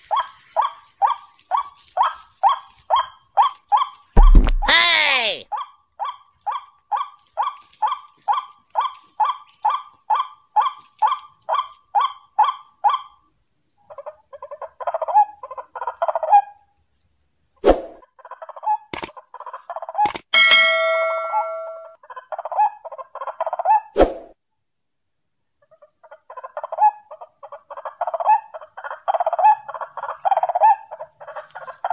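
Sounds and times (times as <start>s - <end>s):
sharp clicks: 20.1s - 21.0s.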